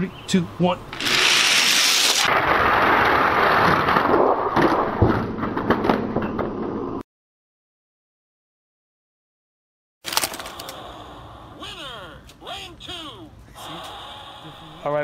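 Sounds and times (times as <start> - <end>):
toy cars rolling on plastic track: 1.0 - 3.8.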